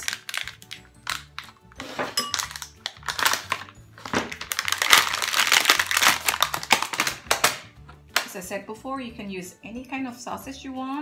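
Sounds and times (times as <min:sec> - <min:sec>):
plastic packaging crinkling: 0:00.0 - 0:08.3.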